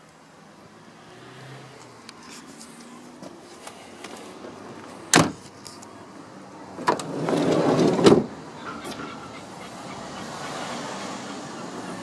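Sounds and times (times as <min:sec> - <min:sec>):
car door slamming: 0:05.1 - 0:05.4
sliding door rolling on track: 0:06.8 - 0:08.4
sliding door thudding shut: 0:06.8 - 0:08.4.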